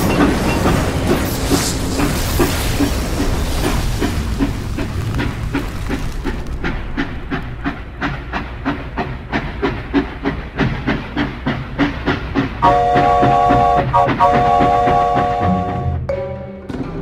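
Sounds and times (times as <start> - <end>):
low rumble: 0.0 - 9.3
steam hissing: 0.0 - 15.8
steam train chuffing: 0.0 - 16.1.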